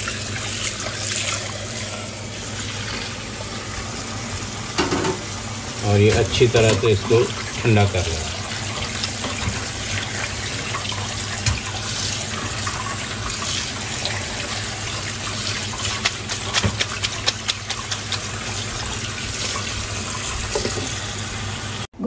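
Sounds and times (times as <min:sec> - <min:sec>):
tap water running into sink: 0:00.0 - 0:21.8.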